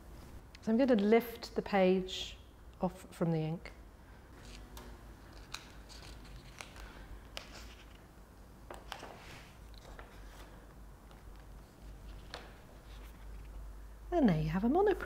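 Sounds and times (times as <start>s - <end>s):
paper rustle: 4.4s - 8.0s, 8.7s - 13.6s
sticky crackles of peeling paper: 5.2s - 8.0s.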